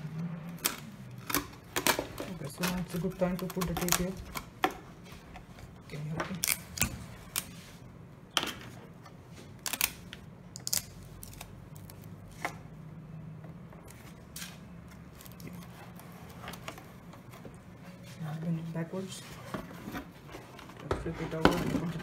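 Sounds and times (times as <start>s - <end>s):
adhesive tape clicking and crackling: 0.5s - 4.8s, 6.3s - 7.6s, 9.6s - 12.1s.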